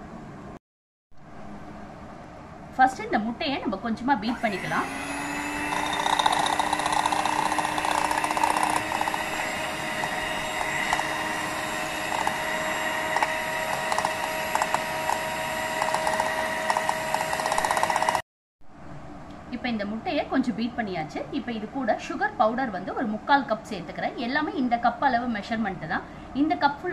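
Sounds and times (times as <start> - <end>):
electric hand mixer whining: 4.3 - 18.2.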